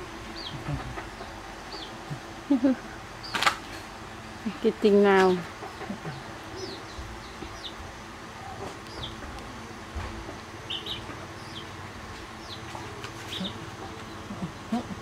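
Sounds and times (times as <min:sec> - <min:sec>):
low ambient hum: 0:00.0 - 0:15.0
small birds chirping: 0:00.2 - 0:03.5, 0:04.4 - 0:09.6, 0:10.4 - 0:15.0.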